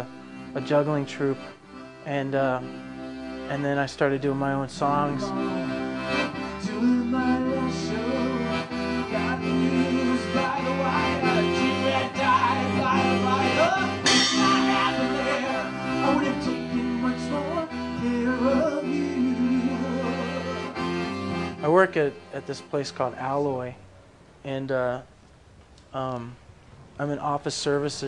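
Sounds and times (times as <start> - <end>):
accordion music: 0.0 - 23.9
sudden bright crash: 14.1 - 14.9.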